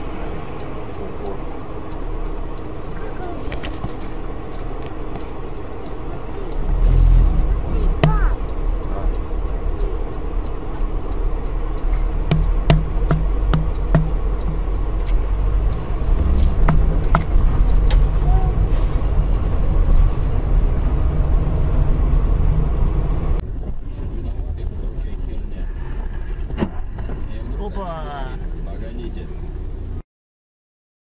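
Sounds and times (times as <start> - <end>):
car engine rumble: 0.0 - 30.0
road noise: 0.0 - 30.0
clicks: 7.8 - 18.2.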